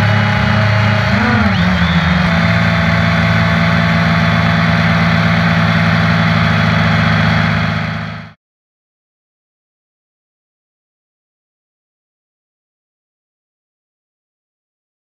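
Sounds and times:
drone motors humming and whining: 0.0 - 8.4.

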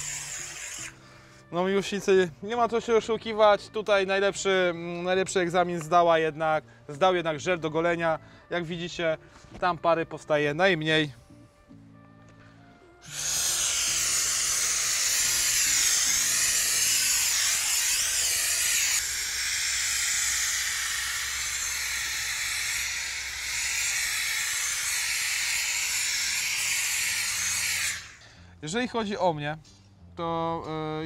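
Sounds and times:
steamer hissing steam: 0.0 - 1.0, 13.0 - 28.2.

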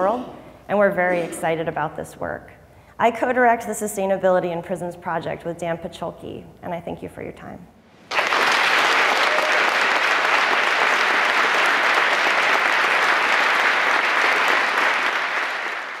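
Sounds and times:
audience applauding: 8.1 - 16.0.

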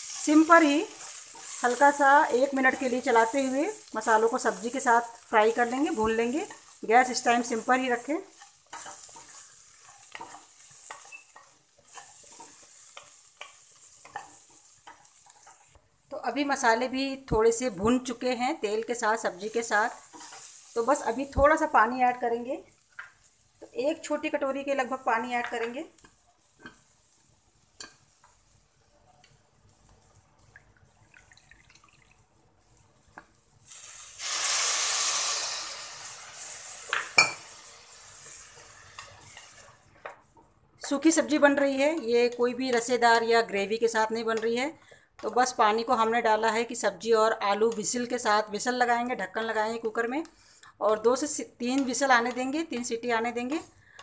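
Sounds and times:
oil sizzling: 0.0 - 44.6
wooden spoon scraping a pot: 38.2 - 40.4.

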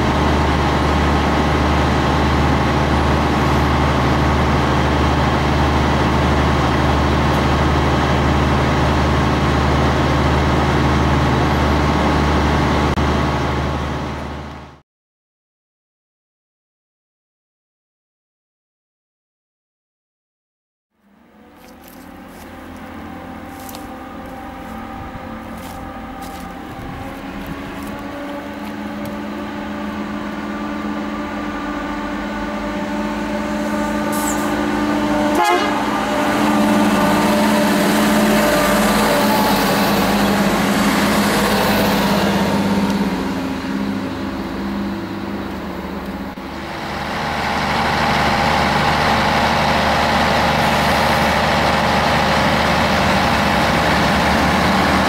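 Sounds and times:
train diesel engines running: 0.0 - 14.8, 21.0 - 55.0.

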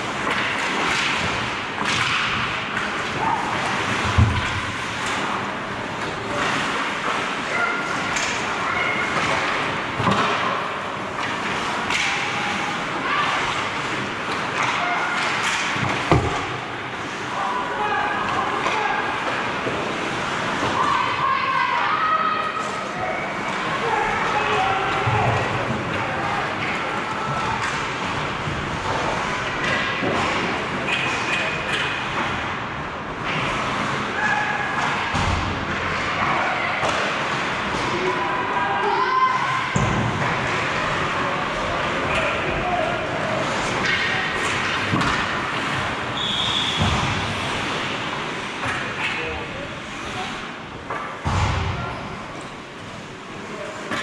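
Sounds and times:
hockey sticks and puck knocking: 14.3 - 16.5
players shouting: 37.8 - 44.6.

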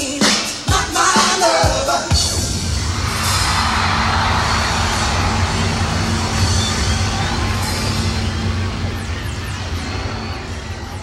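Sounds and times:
large crowd cheering: 2.3 - 11.0.

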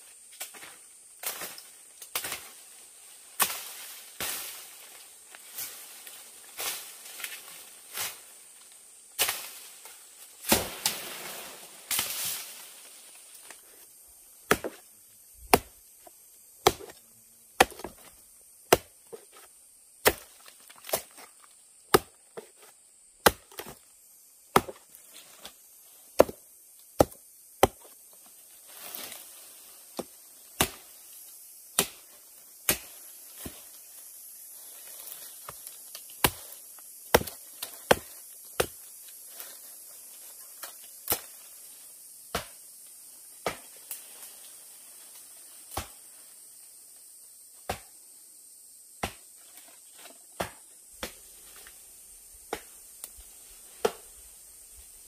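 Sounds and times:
machete chopping plant: 0.4 - 2.6, 3.4 - 4.6, 9.2 - 9.6, 10.4 - 12.5, 14.4 - 15.8, 16.6 - 17.0, 17.6 - 23.8, 24.5 - 25.6, 26.2 - 26.4, 27.0 - 28.0, 29.9 - 31.0, 31.7 - 33.8, 34.9 - 39.0, 40.6 - 41.4, 42.3 - 42.6, 43.4 - 43.8, 45.7 - 46.0, 47.7 - 48.0, 49.0 - 49.3, 50.0 - 51.2, 52.4 - 52.8, 53.8 - 54.1.

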